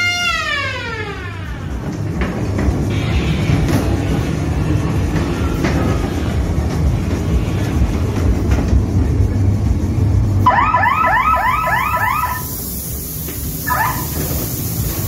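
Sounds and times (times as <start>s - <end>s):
ride car rumbling on track: 0.0s - 15.0s
electronic warble of rising chirps: 10.4s - 12.6s, 13.6s - 14.2s.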